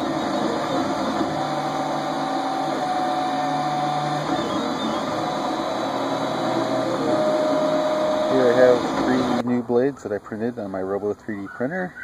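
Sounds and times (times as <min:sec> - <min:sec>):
stepper motors whining: 0:00.0 - 0:09.4
cooling fan hiss: 0:00.0 - 0:11.2.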